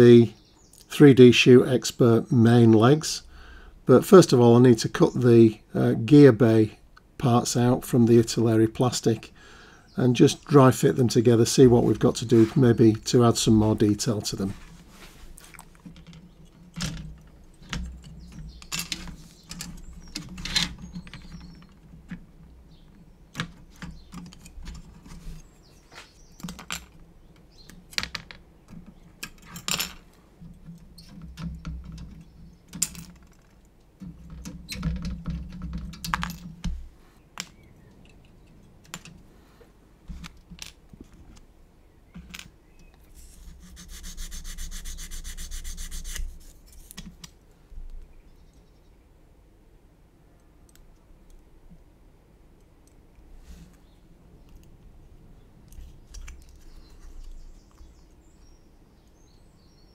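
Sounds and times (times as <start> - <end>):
rustling handling noise: 10.2 - 22.3
plastic parts clicking and snapping: 30.4 - 36.8, 55.7 - 57.9.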